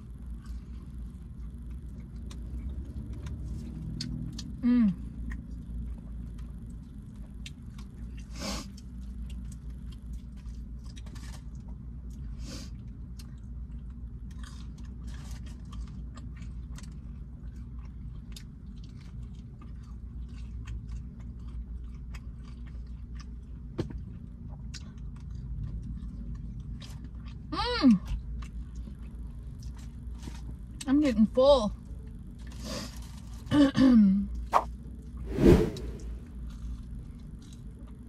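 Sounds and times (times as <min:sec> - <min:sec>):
chewing and biting: 0:00.2 - 0:27.5
steady low hum: 0:35.3 - 0:36.3.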